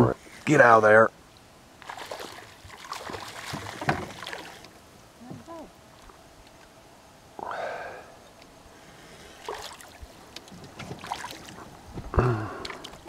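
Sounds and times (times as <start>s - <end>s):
swishing splash: 1.8s - 4.7s, 9.4s - 10.0s, 11.0s - 11.6s
gear knocking inside a canoe: 2.9s - 4.6s.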